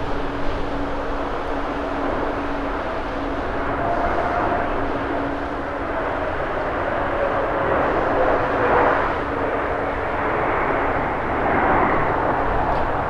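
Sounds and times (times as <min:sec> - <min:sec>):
jet engine rush: 0:00.0 - 0:13.0.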